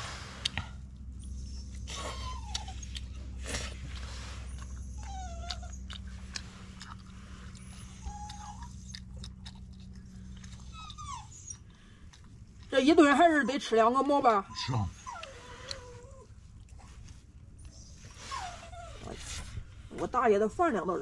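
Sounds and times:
person chewing and slurping noodles: 0.0s - 12.7s
dog whimpering: 1.1s - 12.1s, 12.7s - 16.4s, 17.5s - 19.6s.

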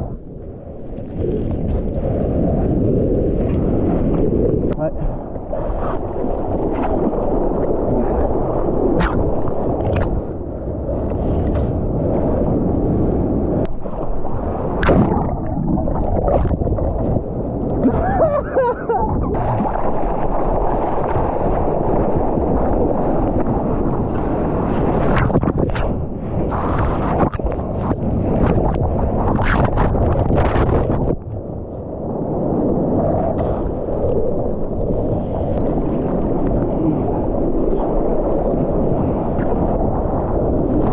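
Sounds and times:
sea water rushing and splashing: 0.0s - 40.9s
underwater bubbling gurgle: 0.0s - 40.9s
wind on microphone: 0.0s - 40.9s
sharp water splash hits: 14.8s - 16.6s.

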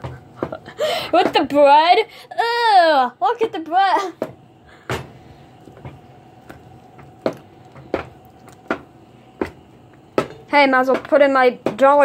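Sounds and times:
spoon stirring thick mixture: 5.2s - 11.9s.

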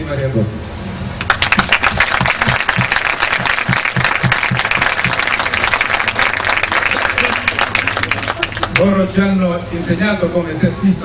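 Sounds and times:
crowd applauding: 1.2s - 9.0s.

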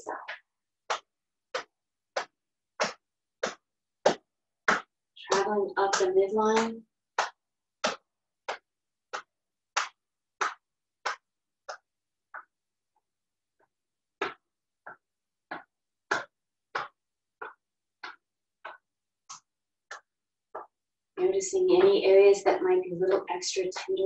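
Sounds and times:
hand tapping on chest: 0.2s - 12.6s, 13.6s - 20.8s.

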